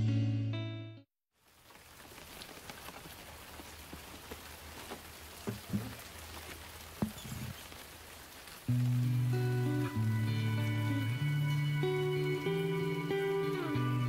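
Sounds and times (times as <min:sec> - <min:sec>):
guitar music: 0:00.0 - 0:01.0, 0:08.7 - 0:14.0
steady rain falling: 0:01.4 - 0:14.0
water drips: 0:01.4 - 0:14.0
guitar knocks: 0:05.5 - 0:06.0.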